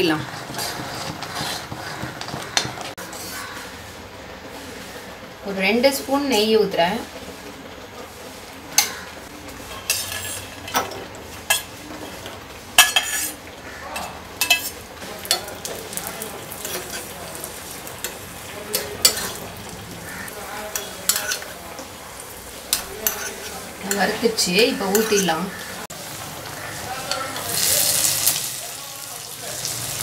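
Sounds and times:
spoon scraping metal pan: 0.0 - 3.6, 9.7 - 11.7, 12.8 - 13.4, 14.0 - 25.8
nuts sizzling in hot fat: 0.0 - 30.0.

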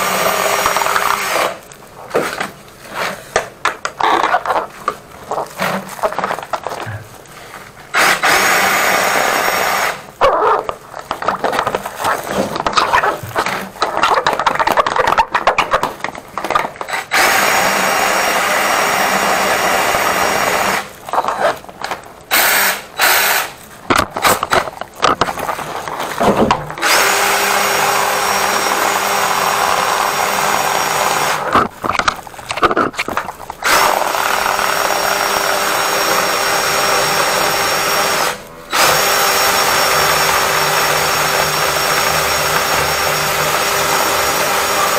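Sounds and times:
drain-cleaning machine motor: 26.5 - 31.5, 33.6 - 44.9.

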